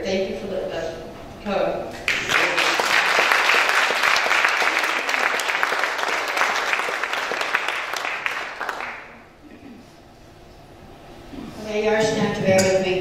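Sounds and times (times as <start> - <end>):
congregation applauding: 2.0 - 9.2.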